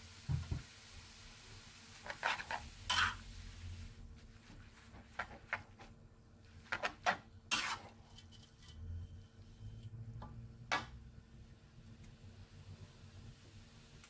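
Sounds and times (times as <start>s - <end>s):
metal spatula scraping a wok: 2.0s - 3.3s, 6.7s - 10.0s.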